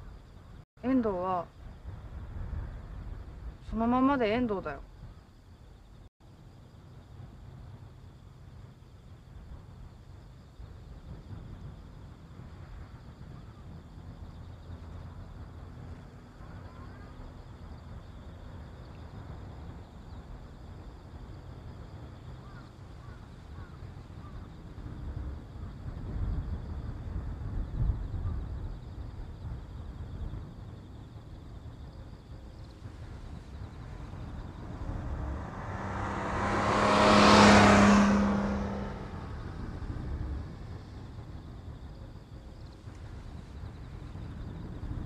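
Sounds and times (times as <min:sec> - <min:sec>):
steady low rumble: 0:09.1 - 0:37.0, 0:37.6 - 0:45.0
vehicle passing by: 0:32.9 - 0:41.7.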